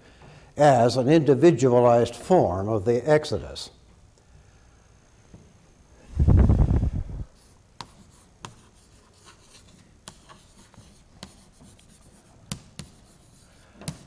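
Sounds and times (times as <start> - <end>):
chalk scraping on blackboard: 7.4 - 14.0
chalk tapping on blackboard: 7.8 - 14.0.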